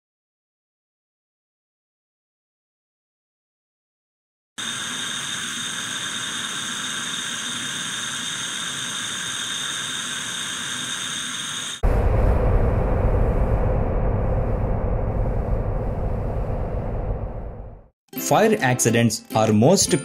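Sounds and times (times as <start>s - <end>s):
hiss of escaping gas: 4.6s - 11.8s
loud explosion with deep rumble: 11.8s - 17.9s.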